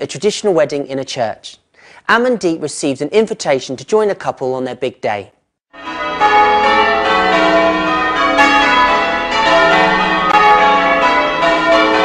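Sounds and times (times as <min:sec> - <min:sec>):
church bells ringing: 0:05.7 - 0:12.0.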